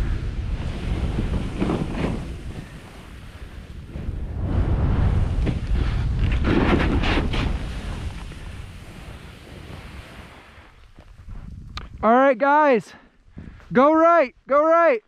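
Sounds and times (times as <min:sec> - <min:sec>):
snowboard scraping over snow: 0:00.0 - 0:11.8
wind buffeting microphone: 0:00.0 - 0:12.1, 0:13.2 - 0:13.9.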